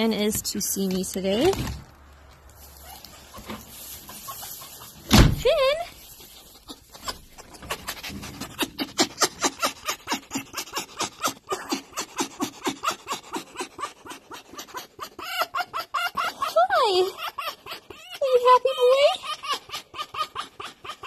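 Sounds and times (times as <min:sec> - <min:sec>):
fox panting laughs: 0:06.5 - 0:21.0.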